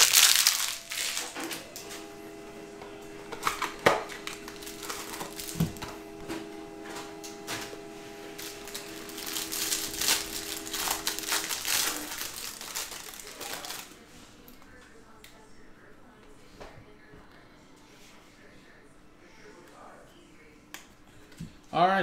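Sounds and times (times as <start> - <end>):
cellophane wrapper crinkling: 0.0 - 1.7, 3.5 - 5.8, 8.4 - 14.0.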